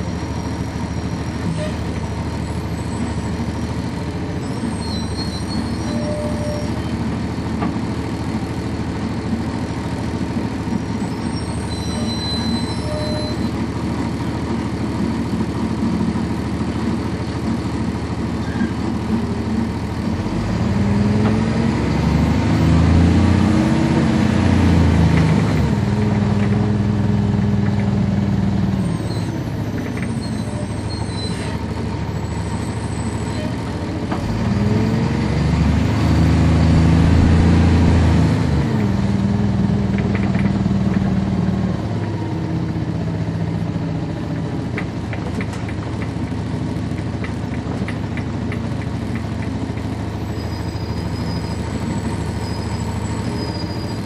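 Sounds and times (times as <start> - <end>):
bus diesel engine revving: 19.2 - 44.7.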